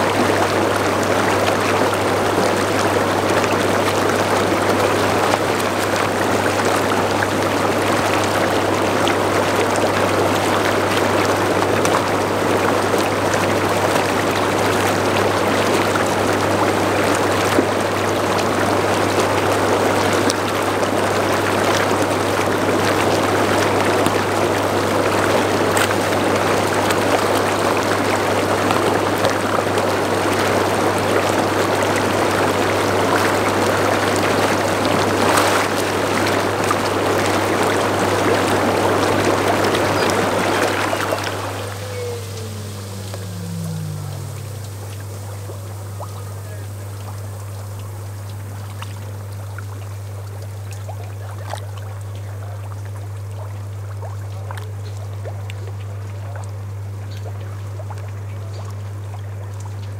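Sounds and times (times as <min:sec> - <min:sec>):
low hum: 0:39.2 - 0:50.4.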